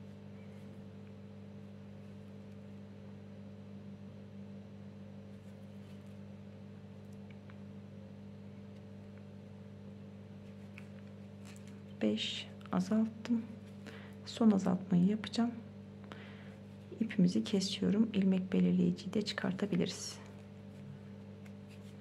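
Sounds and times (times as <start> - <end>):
low electrical hum: 0.0 - 22.0.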